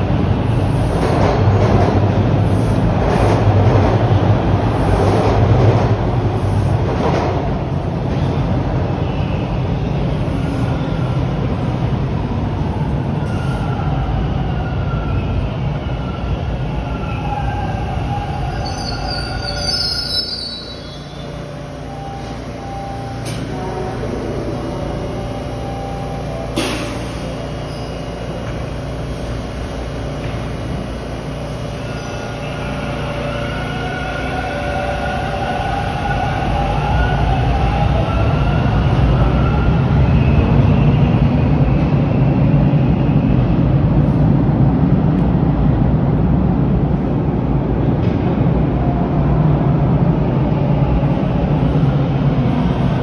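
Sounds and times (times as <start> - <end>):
subway train rumble: 0.0 - 53.0
train brakes squealing: 13.2 - 24.0, 25.4 - 28.4, 31.8 - 41.3.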